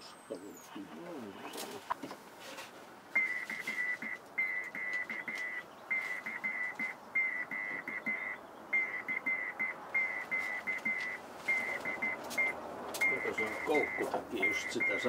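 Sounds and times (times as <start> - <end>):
morse code beeps: 3.2 - 15.0.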